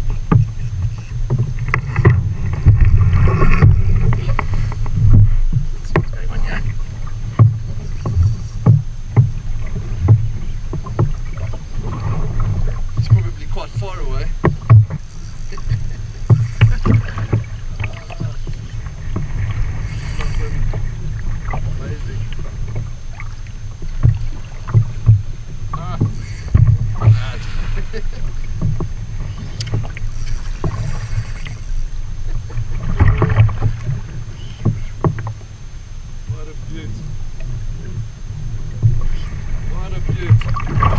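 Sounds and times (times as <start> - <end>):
wind rumble on microphone: 0.0 - 13.4
water slapping against kayak hull: 0.0 - 35.4, 38.6 - 40.9
steady low rumble: 0.0 - 40.9
fishing reel cranking clicks: 13.3 - 18.6, 19.7 - 20.8, 25.8 - 26.8, 29.3 - 32.0.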